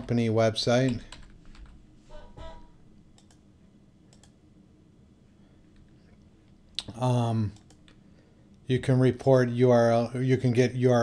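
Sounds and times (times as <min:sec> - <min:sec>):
keyboard and mouse clicks: 0:03.1 - 0:03.4, 0:04.1 - 0:04.4, 0:07.5 - 0:08.0.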